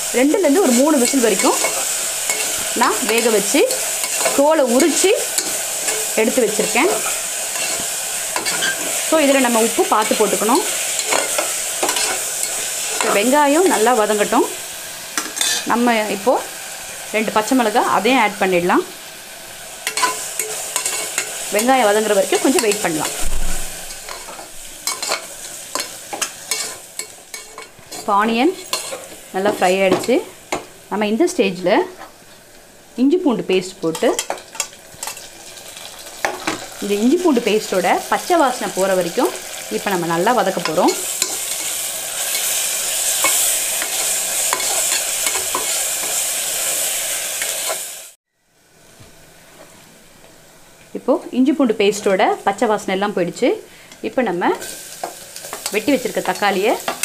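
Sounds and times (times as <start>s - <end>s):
onions sizzling in oil: 0.0s - 57.0s
metal spatula scraping a pot: 6.8s - 9.1s, 10.0s - 13.2s, 15.2s - 15.7s, 19.8s - 21.4s, 23.9s - 29.7s, 40.6s - 46.2s.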